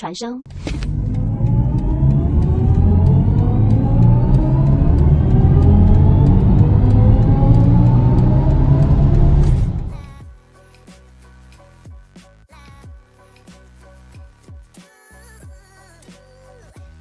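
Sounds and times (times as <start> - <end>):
synthesized rising electric car tones: 0.5 - 10.1
deep rumble: 0.5 - 10.2.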